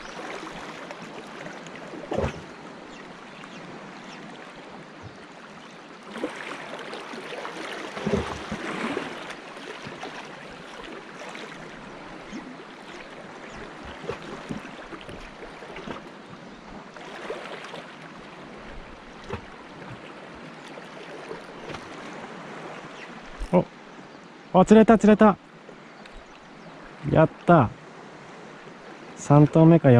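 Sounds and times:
waves lapping against rocks: 0:00.0 - 0:23.6.

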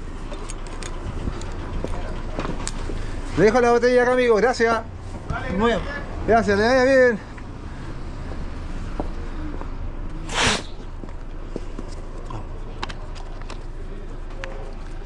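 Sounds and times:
short rushing hiss: 0:10.3 - 0:10.8.

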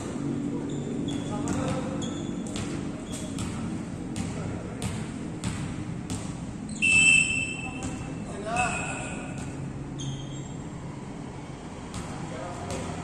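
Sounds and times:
volleyball hitting wooden court: 0:01.2 - 0:08.2, 0:09.2 - 0:09.7, 0:11.8 - 0:13.0
whistle blast: 0:06.7 - 0:07.8.

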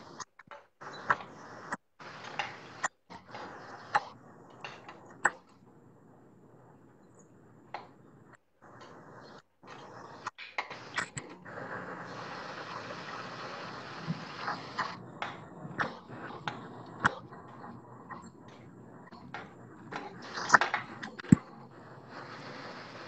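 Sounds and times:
deep-frying hiss: 0:00.8 - 0:04.6, 0:08.8 - 0:23.0.

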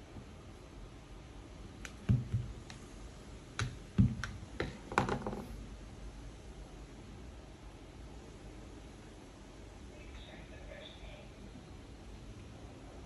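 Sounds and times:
heavier knocks: 0:02.0 - 0:02.6, 0:03.6 - 0:05.5.

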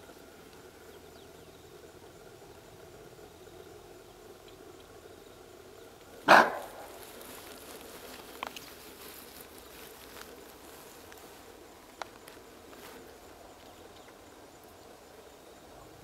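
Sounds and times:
antelope alarm bark: 0:06.2 - 0:07.0.

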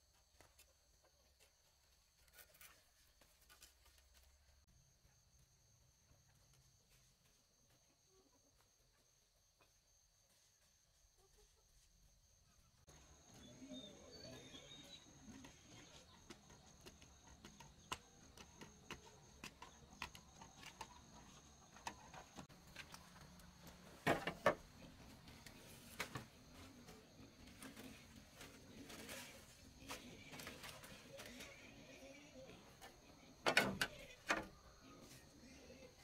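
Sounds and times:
bird chirp: 0:12.9 - 0:16.2.

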